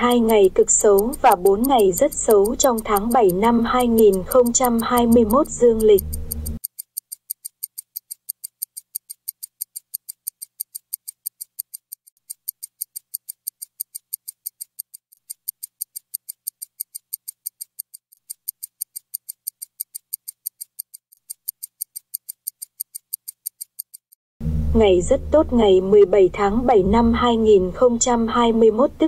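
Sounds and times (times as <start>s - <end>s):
rapid high-pitched ticking: 0.0s - 24.2s.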